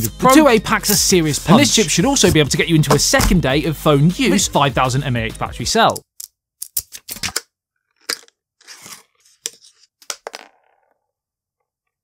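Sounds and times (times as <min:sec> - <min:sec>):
paper rustling: 0:08.0 - 0:10.0.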